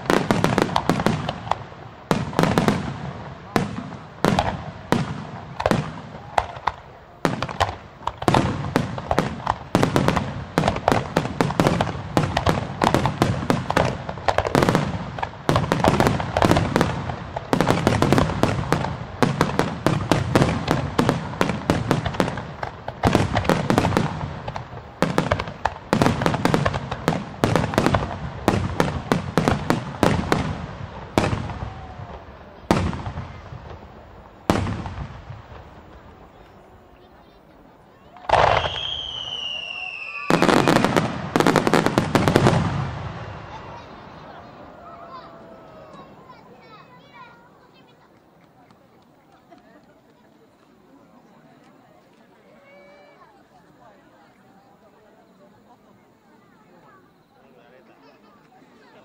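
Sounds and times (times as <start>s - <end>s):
firework shells bursting: 0.0s - 36.6s, 38.2s - 44.3s
firework crackle: 0.0s - 53.4s.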